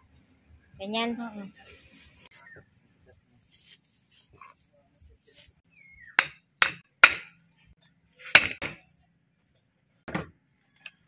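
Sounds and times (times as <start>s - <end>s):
knife chopping on wooden block: 6.2s - 7.3s, 8.2s - 8.8s.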